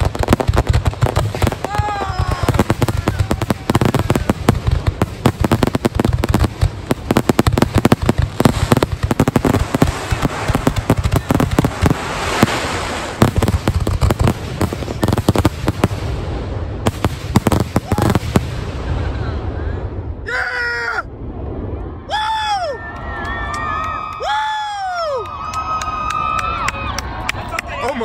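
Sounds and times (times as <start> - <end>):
crackling hiss: 0.0 - 20.0
fireworks bursting: 0.0 - 20.0.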